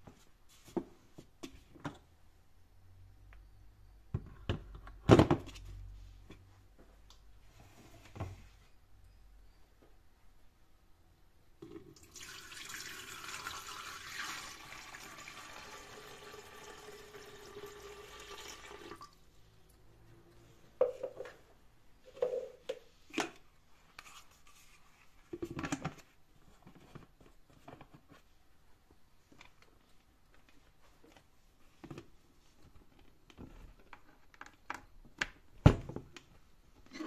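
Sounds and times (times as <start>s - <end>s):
water pouring into tank: 11.9s - 19.2s.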